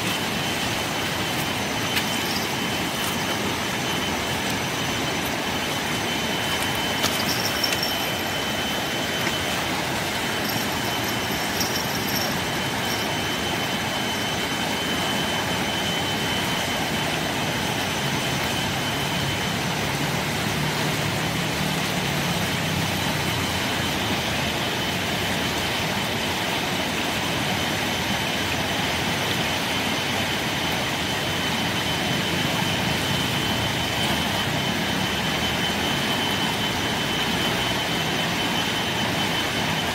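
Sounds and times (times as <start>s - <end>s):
river rushing: 0.0s - 27.1s.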